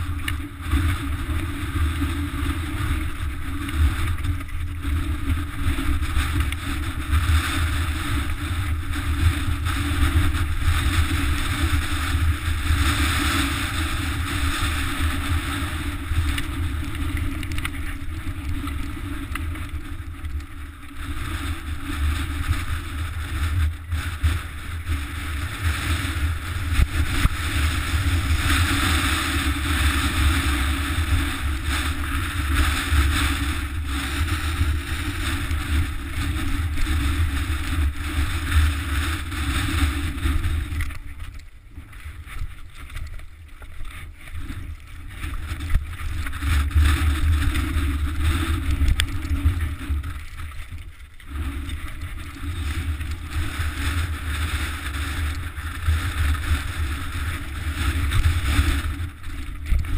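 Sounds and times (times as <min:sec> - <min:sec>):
bike tyres rattling over rock: 0:00.0 - 0:59.9
wind buffeting microphone: 0:21.0 - 0:41.1.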